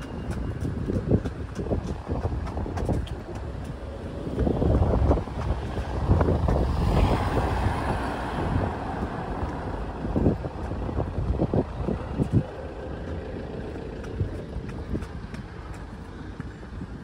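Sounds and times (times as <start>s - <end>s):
low traffic rumble: 0.0s - 17.0s
car passing close by: 4.6s - 11.5s.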